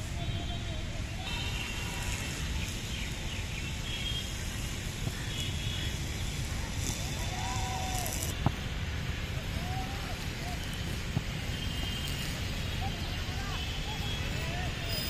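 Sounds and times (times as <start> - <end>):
faint distant shout: 9.4 - 10.7.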